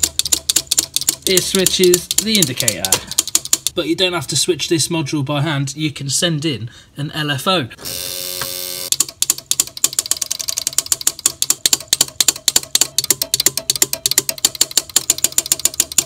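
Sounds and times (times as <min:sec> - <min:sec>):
rapid mechanical clicking: 0:00.0 - 0:03.8, 0:08.9 - 0:16.0.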